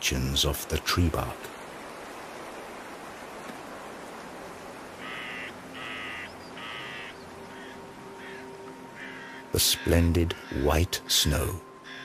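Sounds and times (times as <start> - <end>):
steady background hiss: 0.0 - 12.0
bird calling harshly: 5.0 - 10.6.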